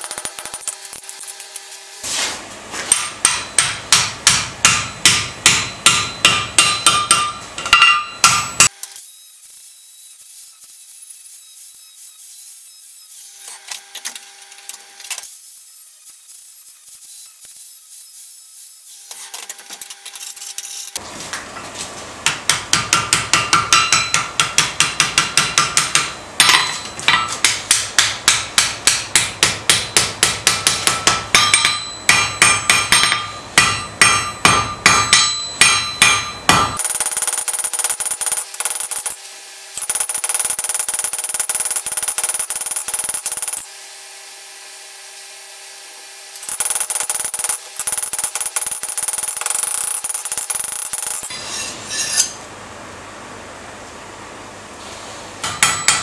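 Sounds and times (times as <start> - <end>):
hammer striking steel on anvil: 2.8 - 8.8, 22.2 - 39.2, 55.4 - 56.0.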